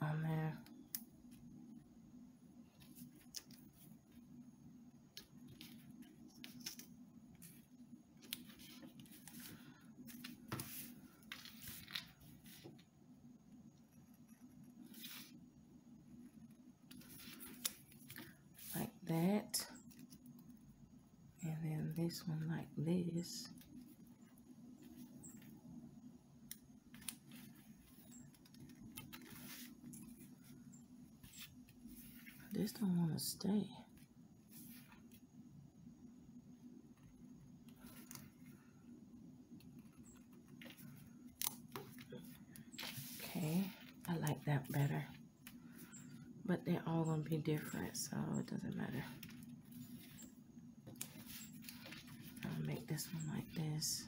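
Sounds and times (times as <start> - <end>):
faint steady hum: 0.0 - 54.0
tape rustling and clicking: 5.1 - 7.5, 39.6 - 43.0.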